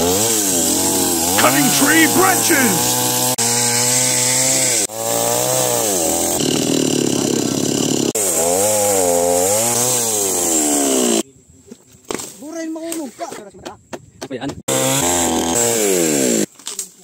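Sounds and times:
chainsaw cutting wood: 0.0 - 11.2, 14.7 - 16.5.

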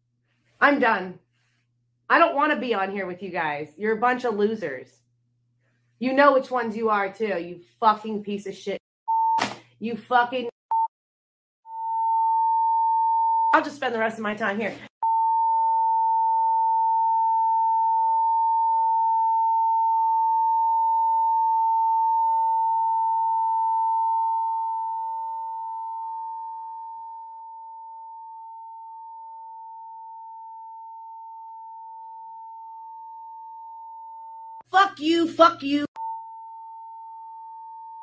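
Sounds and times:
censor bleep tone: 11.7 - 13.6, 15.0 - 33.0, 36.0 - 38.0.

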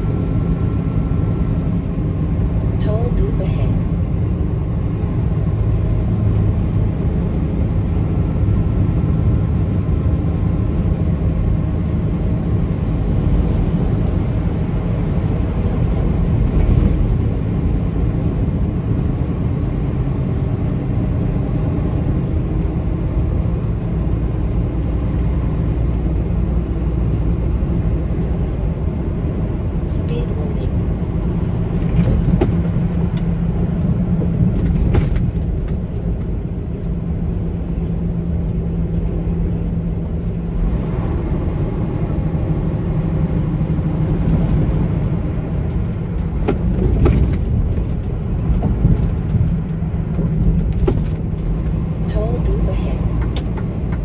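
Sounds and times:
car driving on road: 0.0 - 54.0.

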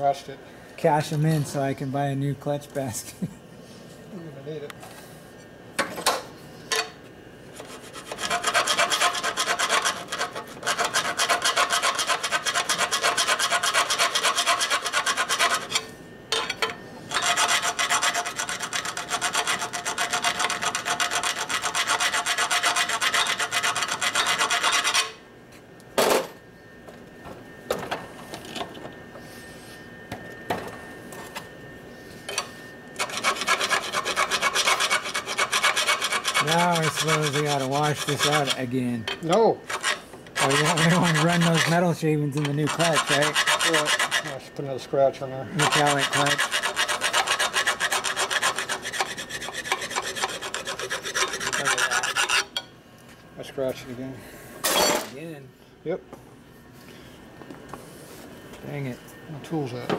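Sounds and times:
hand file rasping on metal: 7.6 - 15.8, 17.1 - 25.2, 33.0 - 38.8, 39.7 - 44.4, 45.6 - 52.5.

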